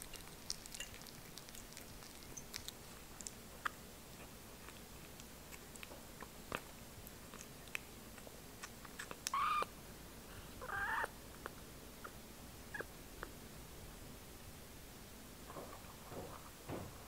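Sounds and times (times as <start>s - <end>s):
kitten mewing: 8.9s - 9.7s, 10.6s - 11.1s.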